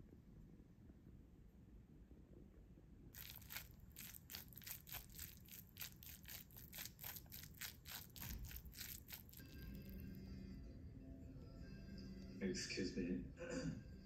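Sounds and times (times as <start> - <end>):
metal spoon stirring rice in bowl: 3.2 - 9.8.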